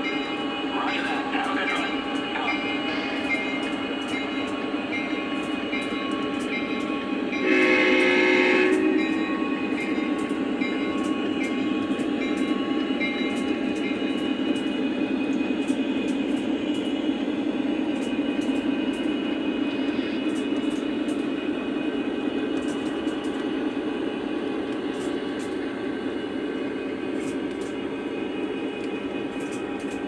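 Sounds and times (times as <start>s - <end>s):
train horn blast: 7.4s - 9.1s.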